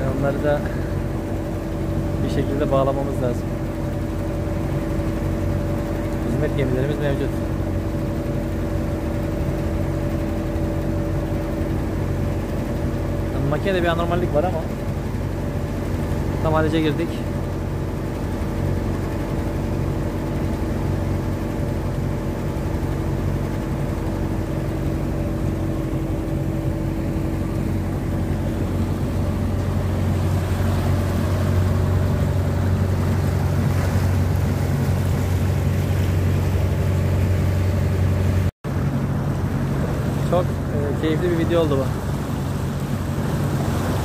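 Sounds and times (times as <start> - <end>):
man speaking: 0.0 - 0.9, 16.4 - 17.3, 40.3 - 41.9
motorboat engine humming: 0.0 - 44.0
water rushing along hull: 0.0 - 44.0.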